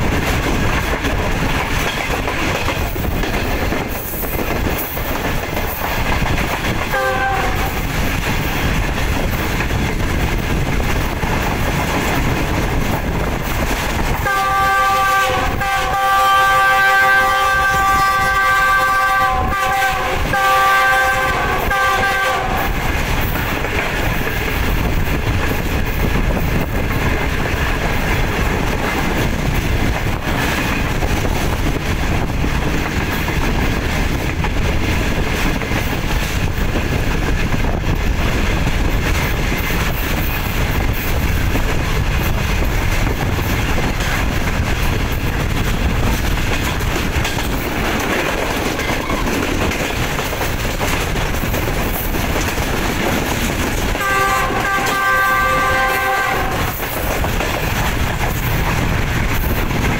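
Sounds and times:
train clickety-clack over rails: 0.0 - 59.9
locomotive horn chord: 6.9 - 7.7, 14.3 - 22.7, 54.0 - 56.7.

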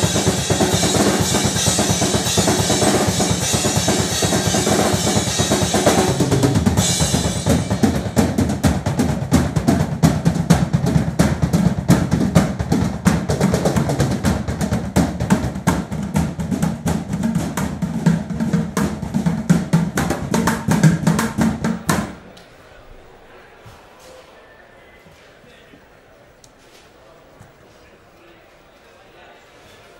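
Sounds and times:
fast drumming on drums and buckets: 0.0 - 22.2.

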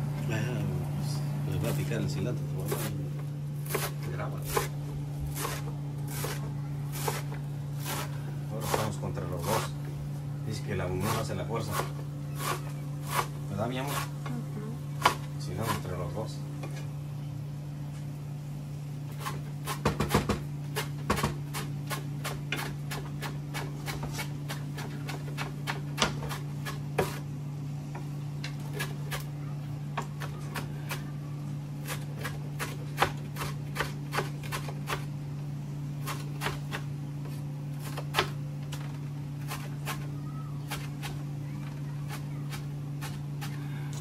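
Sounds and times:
steady low hum: 0.0 - 44.0
knife chopping on cutting board: 3.6 - 9.7, 11.0 - 14.2, 19.1 - 27.2, 31.8 - 35.1, 36.0 - 38.4.

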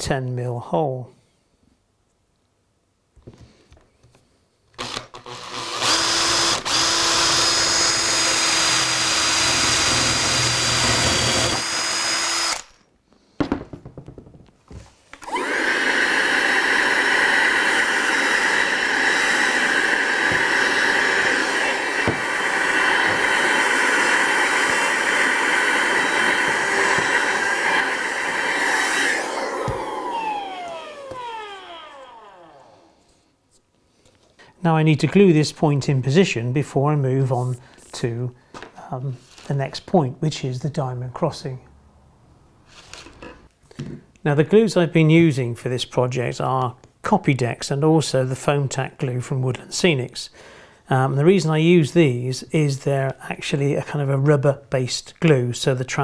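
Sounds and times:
power drill boring: 4.8 - 12.8, 15.2 - 33.0
vacuum cleaner running: 5.3 - 12.6, 15.2 - 33.1.

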